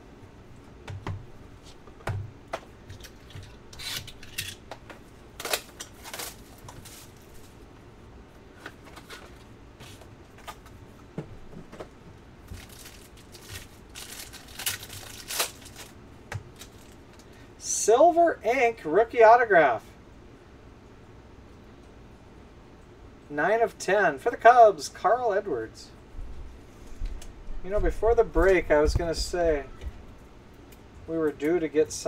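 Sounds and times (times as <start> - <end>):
plastic wrapping crinkling and tearing: 5.4 - 7.6, 12.4 - 17.3.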